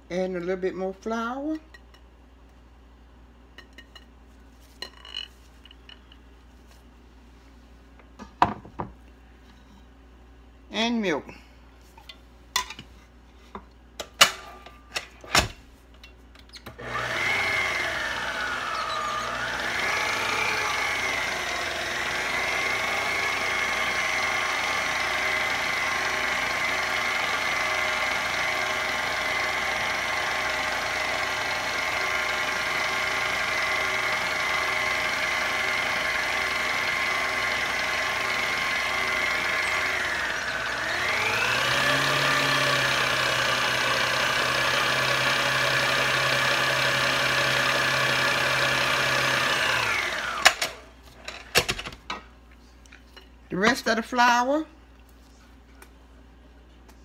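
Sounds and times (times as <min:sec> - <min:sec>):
electric mixer beating batter: 0:16.8 - 0:50.8.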